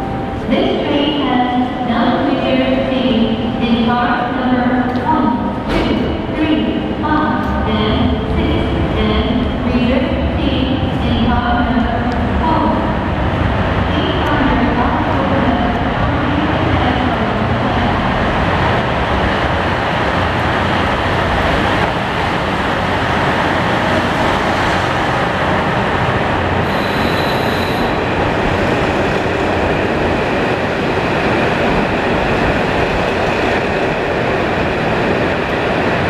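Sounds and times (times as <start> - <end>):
diesel train engines running: 7.5 - 36.0
high-pitched squeal: 26.7 - 28.0.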